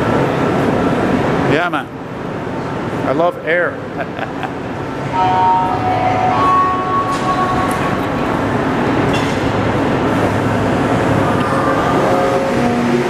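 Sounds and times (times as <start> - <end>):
metro train rumbling: 0.0 - 13.0.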